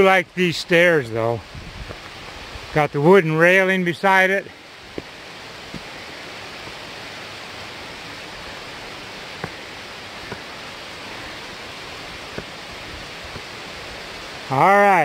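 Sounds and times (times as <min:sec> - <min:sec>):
waterfall rushing: 0:00.0 - 0:15.0
footsteps on rock and dirt: 0:01.8 - 0:02.2, 0:04.9 - 0:06.0, 0:09.3 - 0:10.6, 0:12.2 - 0:13.6.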